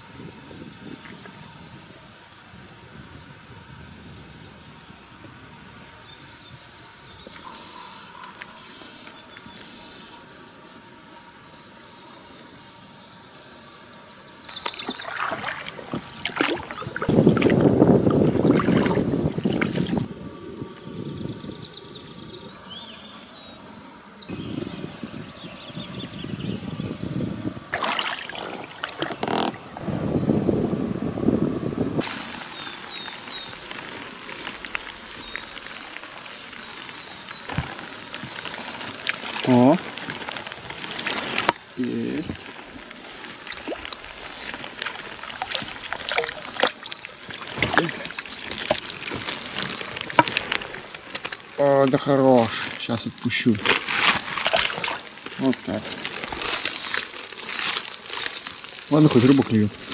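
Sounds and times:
faint bird chirps: 5.9 - 15.4
water splashing against a boat: 14.5 - 20.1, 27.6 - 29.9, 32.0 - 59.9.

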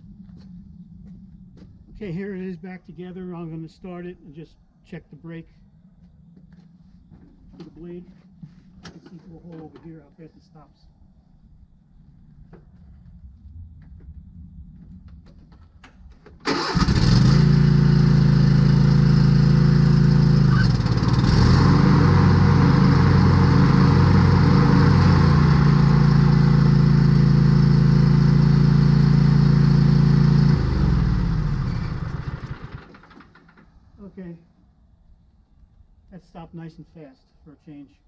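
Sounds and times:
riding mower engine running: 16.4 - 33.8.

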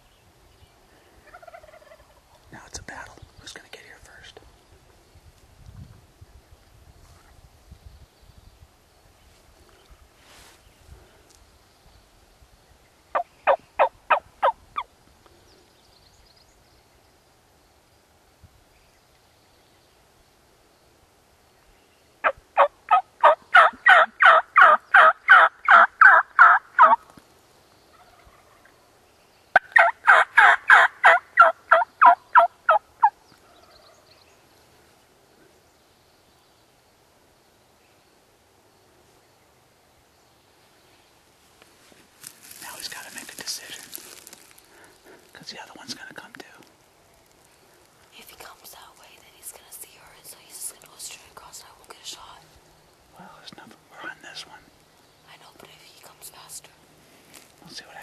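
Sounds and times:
turkey yelping: 22.2 - 27.0, 29.6 - 33.1.

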